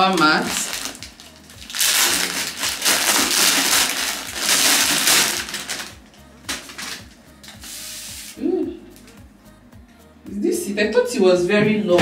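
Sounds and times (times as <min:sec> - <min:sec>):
plastic wrapping crinkling: 0:00.0 - 0:08.3.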